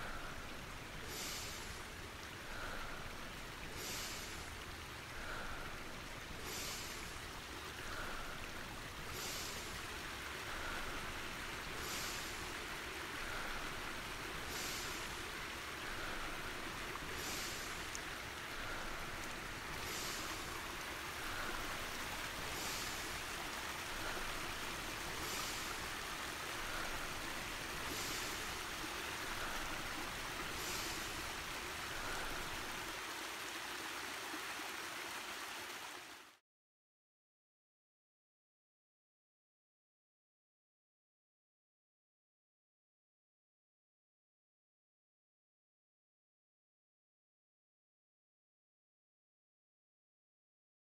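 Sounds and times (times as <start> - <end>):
flowing water rushing: 0.0 - 36.4.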